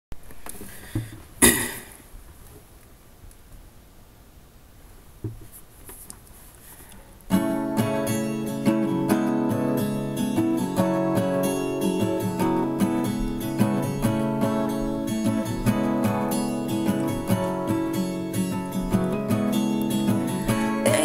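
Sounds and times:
acoustic guitar strumming: 7.3s - 21.0s.

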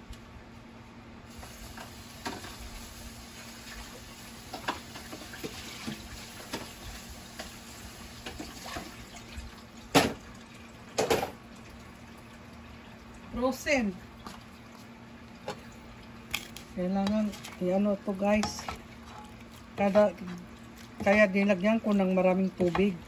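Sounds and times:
broth hissing in a frying pan: 1.3s - 9.1s.

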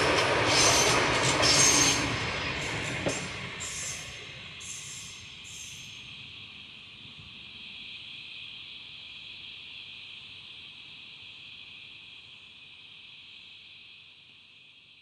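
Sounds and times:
diesel railcar departing: 0.0s - 6.7s
insects chirping: 0.6s - 12.4s.

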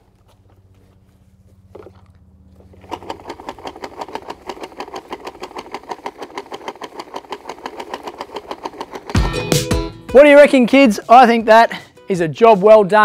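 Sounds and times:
toy lawn mower clicking: 1.7s - 9.7s.

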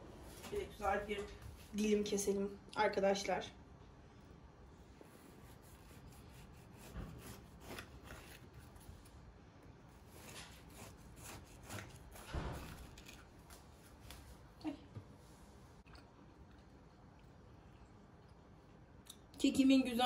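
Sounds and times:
knife sawing through cake: 5.1s - 8.8s, 9.9s - 13.2s.

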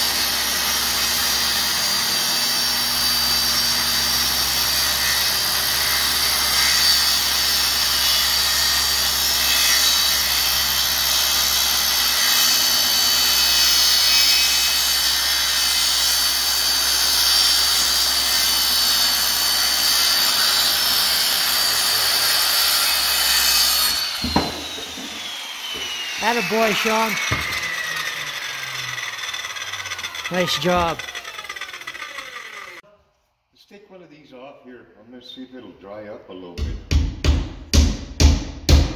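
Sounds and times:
circular saw cutting plywood: 0.0s - 32.8s
knock: 24.2s - 25.2s, 27.3s - 27.6s.

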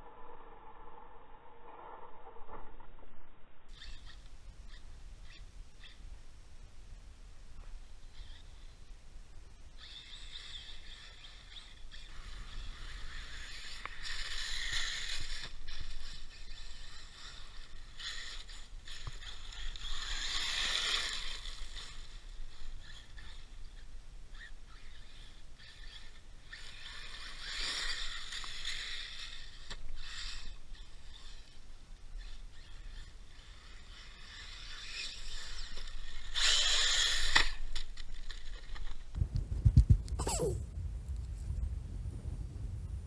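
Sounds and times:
rc truck motor whine: 3.7s - 6.1s, 7.9s - 8.9s, 9.6s - 39.2s.

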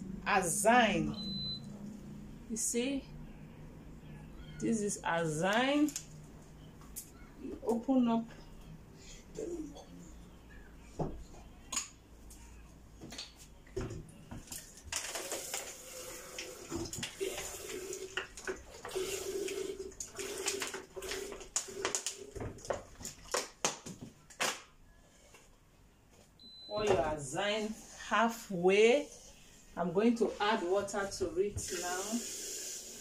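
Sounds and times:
water pouring into kettle: 14.9s - 22.5s, 31.6s - 33.0s.

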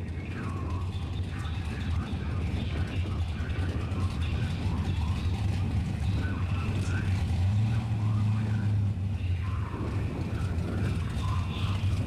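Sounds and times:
car engines idling: 0.0s - 12.0s.

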